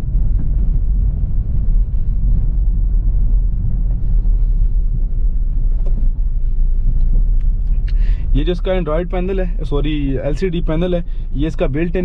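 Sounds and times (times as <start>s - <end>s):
road and tyre rumble: 0.0s - 12.0s
faint light ticks: 6.9s - 8.0s.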